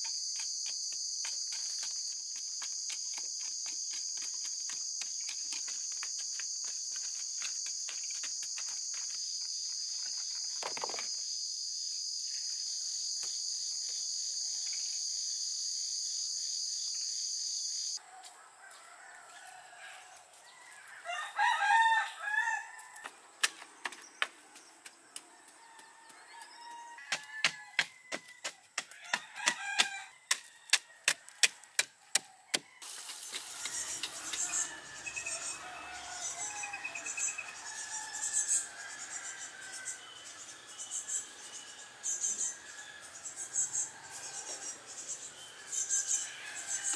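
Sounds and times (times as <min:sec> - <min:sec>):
crickets chirring: 0:00.0 - 0:18.0
rooster crowing: 0:18.0 - 0:23.1, 0:25.6 - 0:31.1, 0:32.4 - 0:40.3, 0:46.2 - 0:46.9
digging stick striking dirt: 0:27.1 - 0:34.6.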